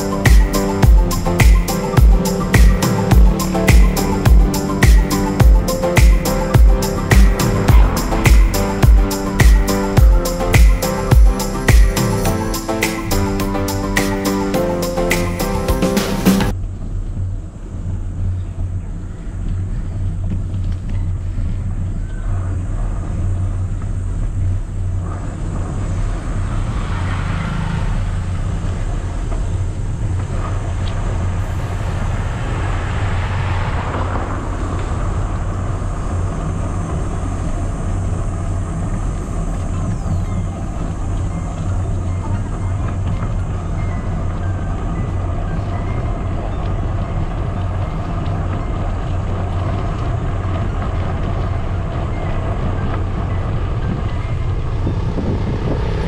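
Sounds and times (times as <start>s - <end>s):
bicycle tyres rolling on concrete: 16.5s - 56.0s
wind buffeting microphone: 16.7s - 56.0s.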